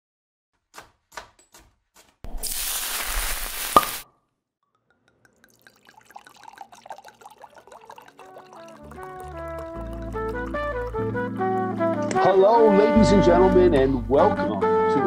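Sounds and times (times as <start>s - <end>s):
liquid pouring: 2.3s - 4.0s, 4.8s - 12.3s
liquid dripping: 4.7s - 12.3s.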